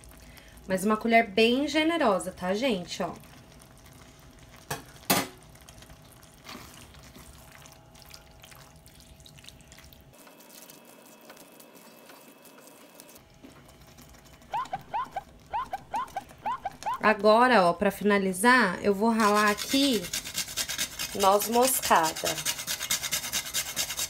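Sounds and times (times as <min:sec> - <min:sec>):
wet squishing of stirred sauce: 0:03.1 - 0:15.5.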